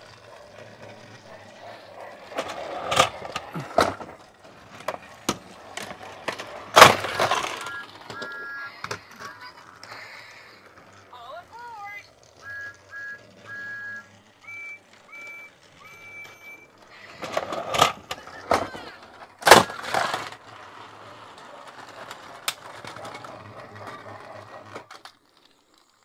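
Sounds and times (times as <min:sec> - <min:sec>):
toy engine motor whir: 0:00.0 - 0:26.0
electronic beeping tones: 0:12.4 - 0:16.7.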